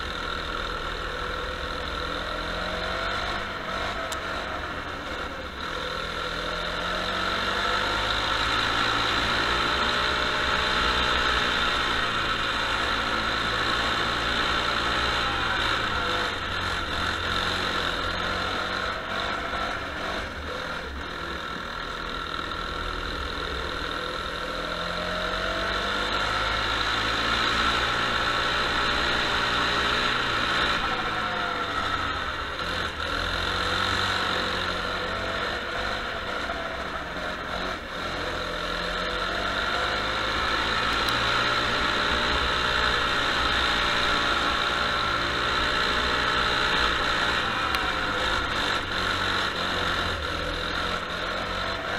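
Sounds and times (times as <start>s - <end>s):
go-kart engine revving: 0.0s - 51.9s.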